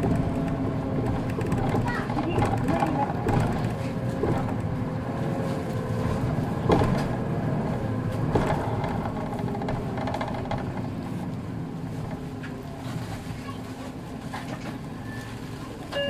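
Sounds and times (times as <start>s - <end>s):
bus diesel engine running: 0.0s - 16.0s
road noise: 0.0s - 16.0s.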